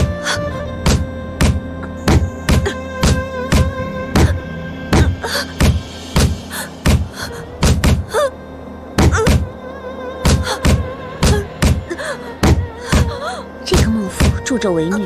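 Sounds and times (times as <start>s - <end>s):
background music score: 0.0s - 15.0s
heavy thuds of cane blows: 0.8s - 8.1s.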